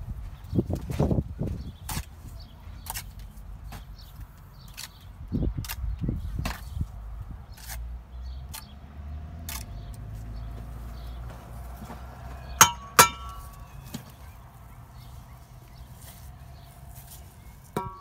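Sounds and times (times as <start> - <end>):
bricks and mortar knocking and scraping: 17.8 - 18.0.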